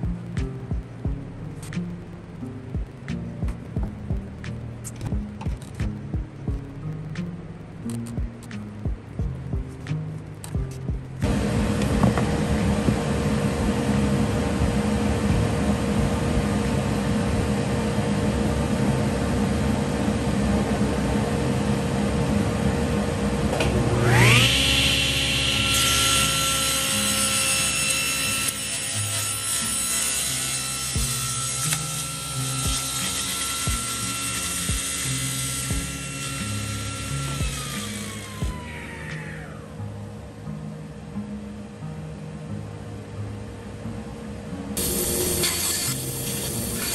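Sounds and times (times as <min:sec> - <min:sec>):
table saw motor whine: 0:11.2 - 0:39.8, 0:44.8 - 0:46.9
power tool cutting wood: 0:23.6 - 0:39.6, 0:44.8 - 0:46.9.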